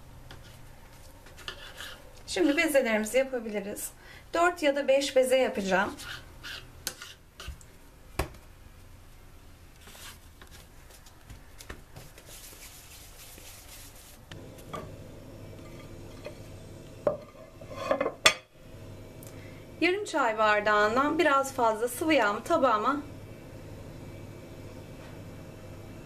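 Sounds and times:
knife cutting dough: 5.9 - 7.6
hands rolling dough: 9.8 - 14.7.

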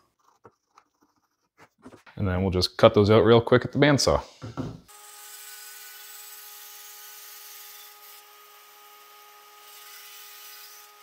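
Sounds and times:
bandsaw cutting wood: 4.9 - 11.0.

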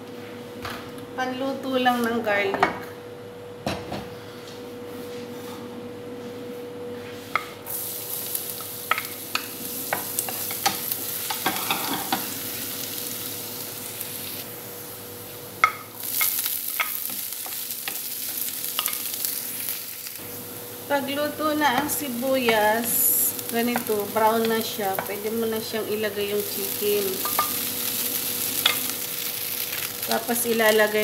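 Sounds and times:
garlic sizzling in hot oil: 7.7 - 31.0.

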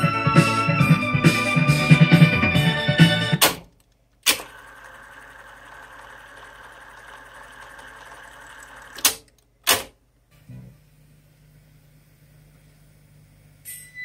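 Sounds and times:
music from cassette deck: 0.0 - 3.6
cassette rewinding whir: 4.3 - 9.2.

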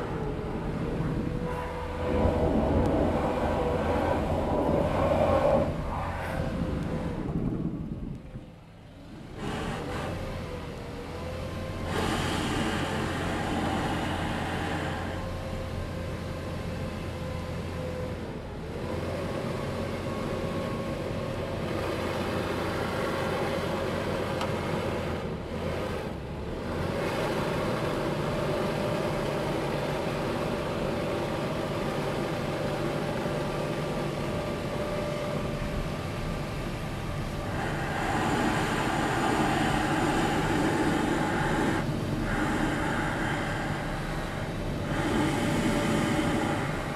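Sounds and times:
leaf blower engine running: 37.4 - 46.9.

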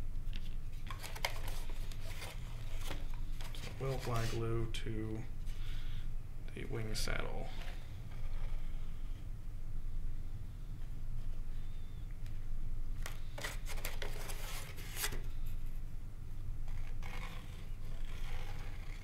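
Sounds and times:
steady low hum: 0.0 - 19.0
foam rubbing and scraping: 16.8 - 19.0.

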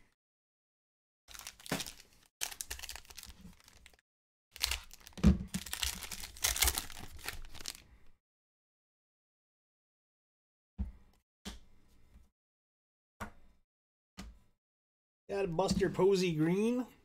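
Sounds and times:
foil pack tearing and crinkling: 1.3 - 4.0, 4.6 - 7.8.

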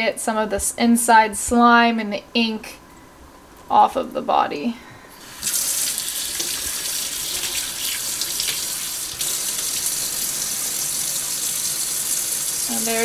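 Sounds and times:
faucet running into metal sink: 5.2 - 13.0.

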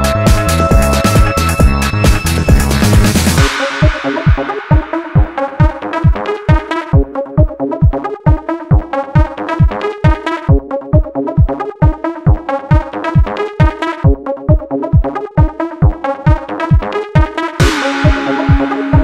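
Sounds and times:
electronic dance music: 0.0 - 19.0.

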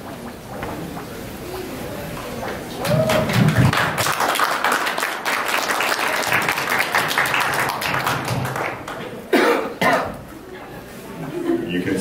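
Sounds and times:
audience applauding: 2.3 - 9.3.

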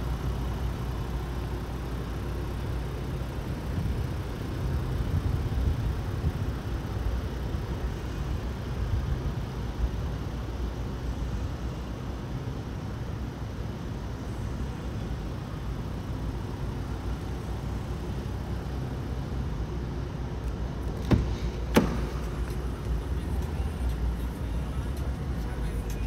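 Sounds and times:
steady low rumble: 0.0 - 26.0
car door latch clicks: 20.8 - 22.6.

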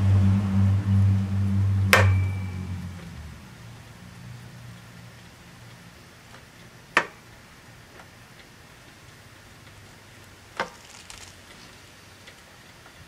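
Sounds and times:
faint ticks: 4.4 - 13.0.

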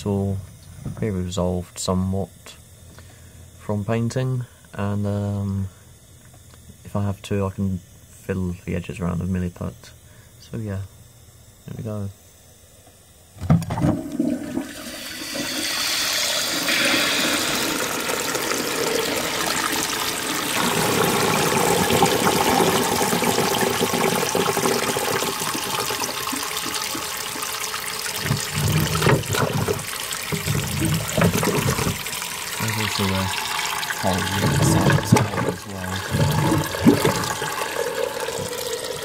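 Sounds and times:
toilet cistern flushing: 13.4 - 39.0
water gurgling: 13.7 - 39.0.

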